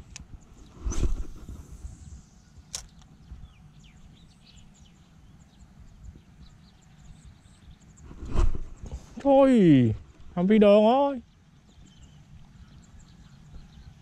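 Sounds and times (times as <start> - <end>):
sharp click: 2.7 - 3.1
faint bird chirps: 11.0 - 14.0.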